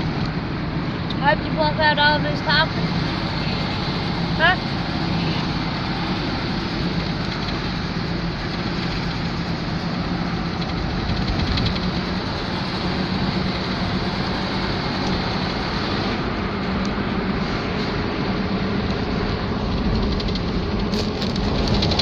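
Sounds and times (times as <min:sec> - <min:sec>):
low engine hum: 0:00.0 - 0:22.0
tyre and wind rush: 0:02.3 - 0:22.0.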